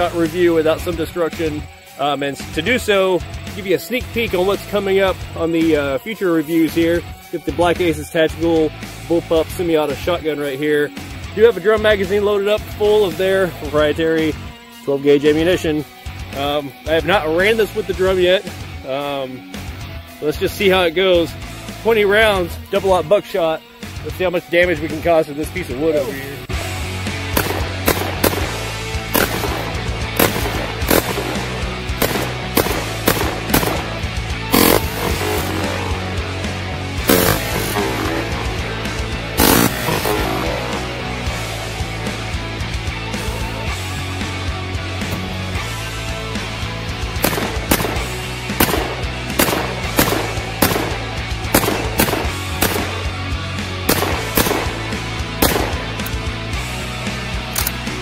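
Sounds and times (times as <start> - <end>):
background music: 0.0 - 58.0
shotgun shots: 27.3 - 36.3, 37.0 - 41.0, 47.2 - 53.1, 53.9 - 56.1.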